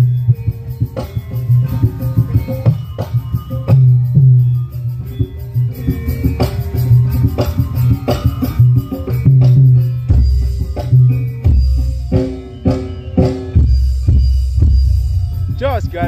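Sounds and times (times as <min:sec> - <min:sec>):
loud bass-heavy music with drums: 0:00.0 - 0:16.0
deep sub-bass line: 0:03.5 - 0:16.0.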